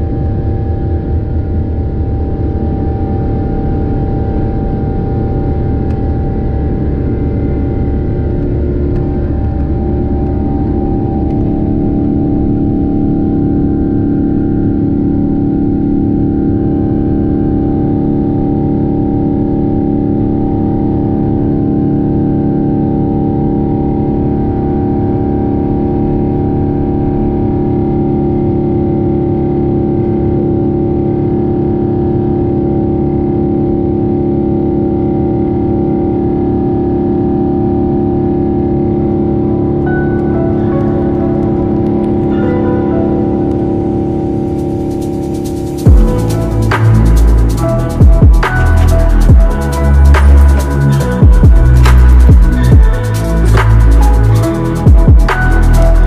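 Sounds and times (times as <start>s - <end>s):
jet engines droning with whine: 0.0s - 56.0s
wheels rumbling on runway: 1.1s - 42.4s.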